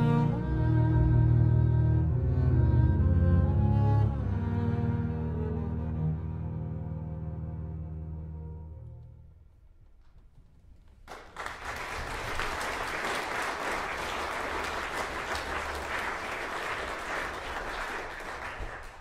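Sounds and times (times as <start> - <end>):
audience applause: 11.0 - 19.0.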